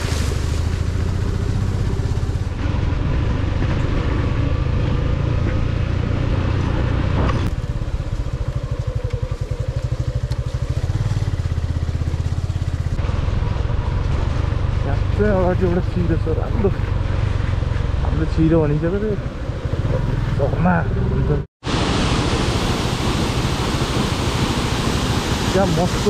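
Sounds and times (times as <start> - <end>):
motorcycle engine running: 0.6 - 21.4.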